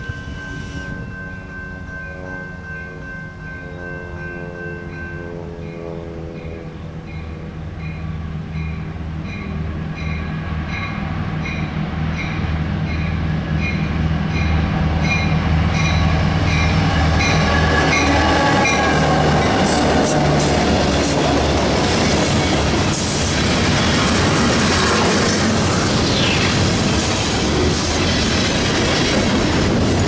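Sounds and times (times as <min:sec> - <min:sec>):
bell dinging: 0:00.0 - 0:05.9
diesel locomotive engines rumbling: 0:00.0 - 0:30.0.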